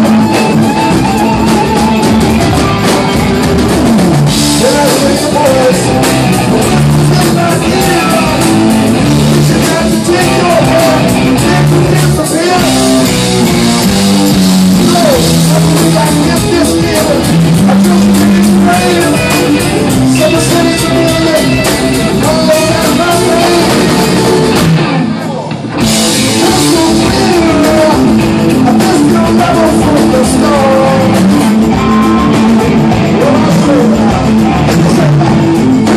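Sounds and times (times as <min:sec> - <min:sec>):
harmonica bending notes: 0:00.0 - 0:03.7
live rock band playing: 0:00.0 - 0:35.9.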